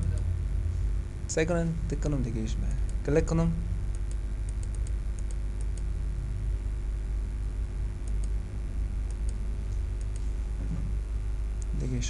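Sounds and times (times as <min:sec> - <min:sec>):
steady low hum: 0:00.0 - 0:12.0
computer mouse clicking: 0:03.9 - 0:05.9, 0:10.0 - 0:10.2.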